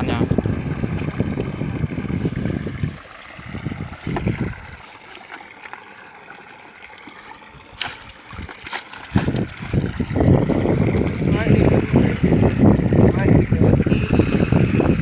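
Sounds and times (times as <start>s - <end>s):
wind buffeting microphone: 0.0s - 4.9s, 7.4s - 15.0s
water splashing: 0.0s - 15.0s
net knocking plastic bucket: 7.8s - 10.1s.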